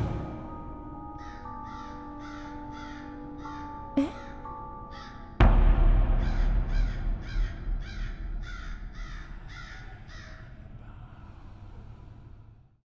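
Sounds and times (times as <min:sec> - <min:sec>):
crow cawing: 0:01.1 - 0:04.3, 0:04.9 - 0:05.4, 0:06.2 - 0:10.6
deep rumbling boom: 0:05.4 - 0:11.0.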